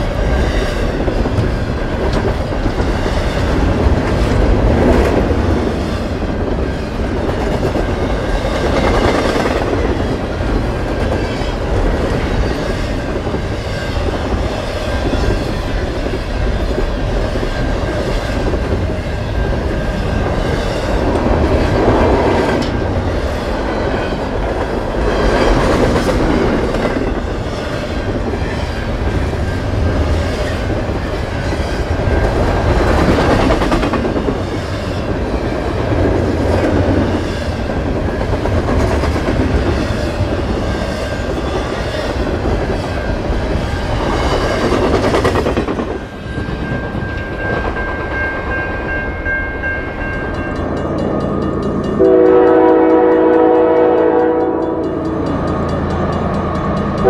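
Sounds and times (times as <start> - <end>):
train wheels clattering on rail: 0.0 - 57.0.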